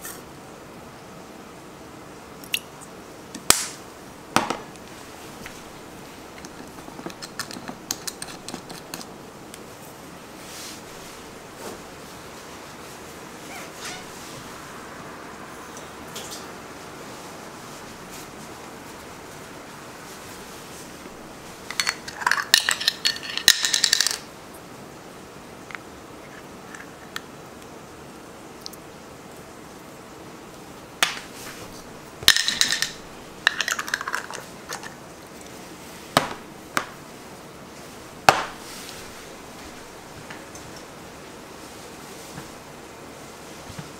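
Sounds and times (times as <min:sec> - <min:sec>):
utensils clinking on steel worktop: 0:21.7 - 0:24.2, 0:32.3 - 0:34.9.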